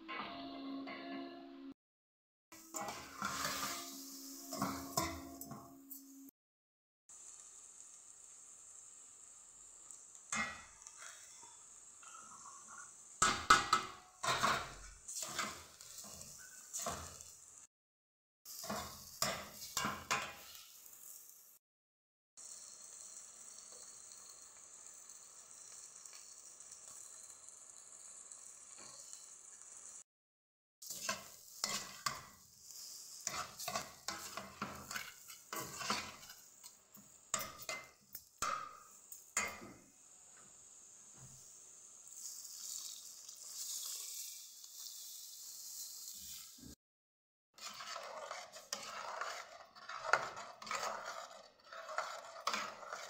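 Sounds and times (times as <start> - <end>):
chicken sizzling in a pot: 2.5 - 6.4, 7.1 - 17.7, 18.4 - 21.6, 22.4 - 30.1, 30.8 - 46.8, 47.6 - 53.0
metal spoon scraping a pot: 2.6 - 6.2, 12.1 - 17.3, 18.6 - 20.6, 30.8 - 39.7, 47.6 - 53.0.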